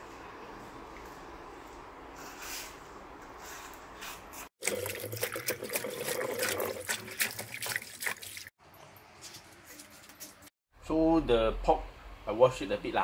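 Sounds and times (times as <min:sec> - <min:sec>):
water splashing in a metal bowl: 0:04.6 - 0:08.5.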